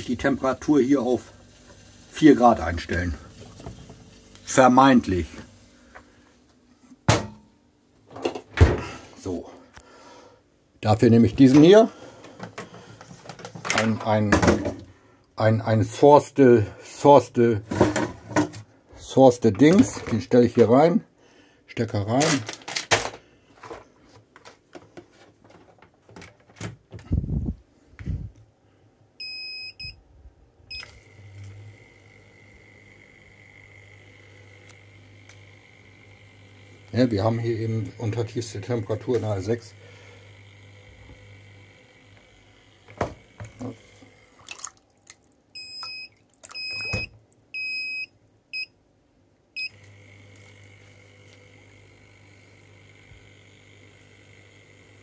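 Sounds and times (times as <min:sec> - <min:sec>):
high whine over low hum: 0:29.2 - 0:44.4
device beeping: 0:45.6 - 0:48.7.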